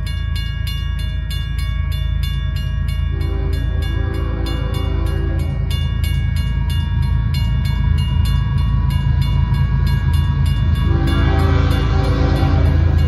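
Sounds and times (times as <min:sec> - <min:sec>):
crossing warning bells ringing: 0:00.0 - 0:13.0
diesel locomotive rumble: 0:00.0 - 0:13.0
locomotive air horn: 0:03.1 - 0:05.7, 0:10.8 - 0:13.0.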